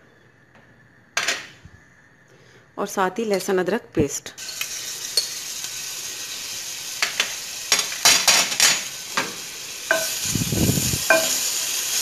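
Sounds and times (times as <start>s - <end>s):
paste sizzling in hot oil: 4.4s - 12.0s.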